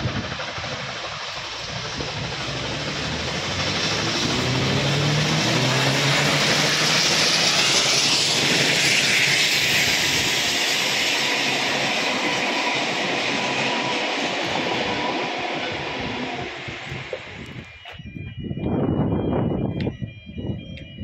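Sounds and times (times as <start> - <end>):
steam locomotive passing: 0.0 - 21.0
carriages rolling past: 1.2 - 10.6.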